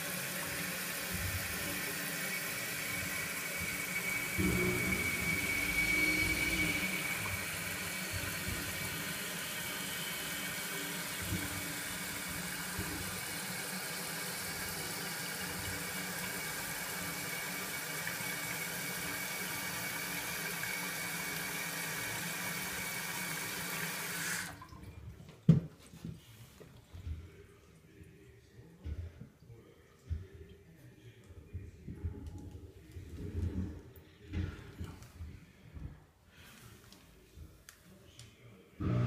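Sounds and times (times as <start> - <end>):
toilet tank refilling: 0.0 - 25.0
faint high whistle: 5.3 - 6.9.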